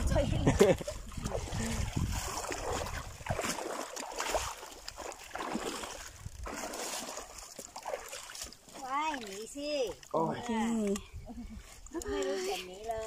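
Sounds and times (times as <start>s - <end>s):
shallow water sloshing: 0.0s - 13.0s
water poured from bucket: 0.9s - 9.5s.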